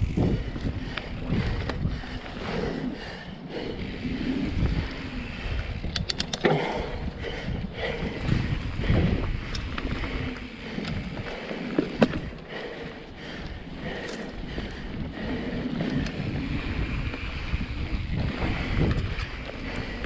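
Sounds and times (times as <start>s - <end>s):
bike tyre rumble over dirt: 0.0s - 20.0s
wind buffeting microphone: 0.0s - 20.0s
sharp clicks: 5.8s - 6.8s.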